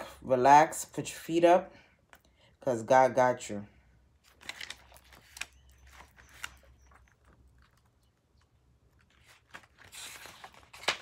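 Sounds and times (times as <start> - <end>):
pages flipping: 4.2 - 11.0.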